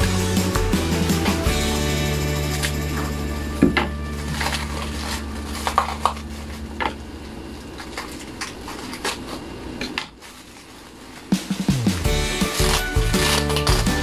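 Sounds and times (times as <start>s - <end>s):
plastic packaging crinkling: 4.1s - 14.0s
faint background music: 11.3s - 14.0s.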